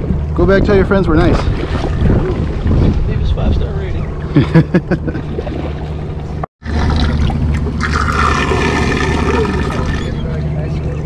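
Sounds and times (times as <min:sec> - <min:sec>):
boat engine hum: 0:00.0 - 0:11.0
water pouring into tank: 0:06.6 - 0:10.1.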